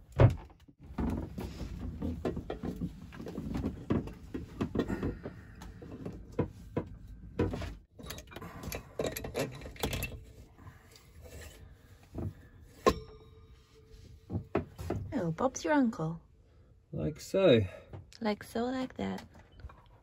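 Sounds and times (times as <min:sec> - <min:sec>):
metal part clunking and scraping: 0:07.4 - 0:10.5.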